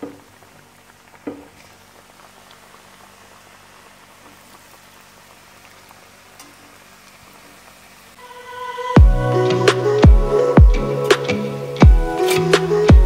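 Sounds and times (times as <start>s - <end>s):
hot oil bubbling and sizzling: 0.0s - 8.2s.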